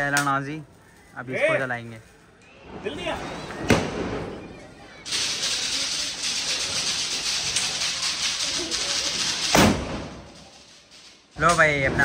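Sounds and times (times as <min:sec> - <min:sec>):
firework hissing: 0:00.6 - 0:11.4
firework bang: 0:03.2 - 0:04.4, 0:05.1 - 0:10.4.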